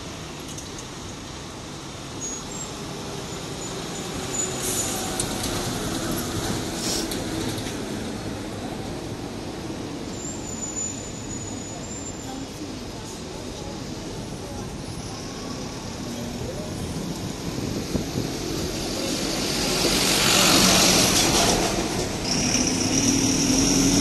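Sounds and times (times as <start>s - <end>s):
street traffic: 0.0s - 24.0s
bus driving past: 1.9s - 24.0s
short air hisses: 6.8s - 7.3s.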